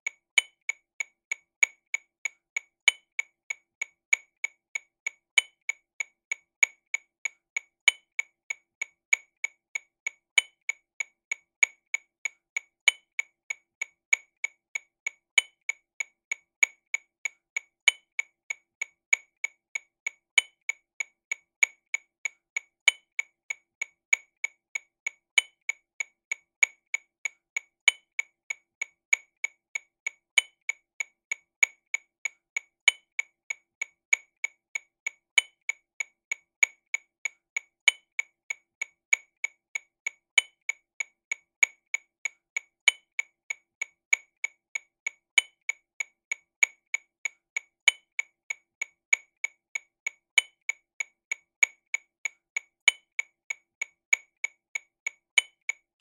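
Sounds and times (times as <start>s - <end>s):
metronome clicks: 47.8s - 48.2s, 52.8s - 53.2s, 55.4s - 56.0s.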